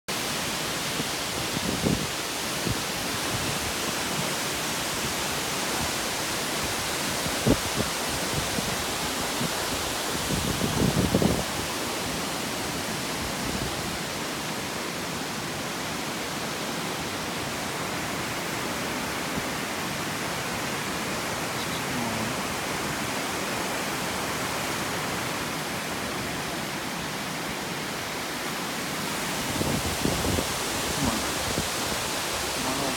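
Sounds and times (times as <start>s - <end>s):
waterfall rushing onto rocks: 0.1s - 32.9s.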